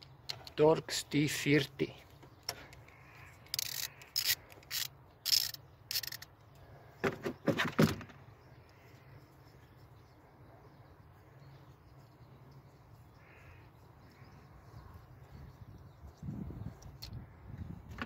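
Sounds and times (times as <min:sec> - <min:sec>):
ratchet wrench rasping: 0:03.4 - 0:06.3.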